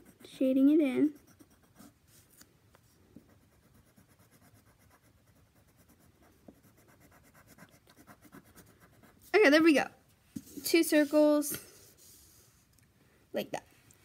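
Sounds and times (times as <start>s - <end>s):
pencil scratching on paper: 0.0s - 2.4s, 3.2s - 9.6s, 10.4s - 12.7s.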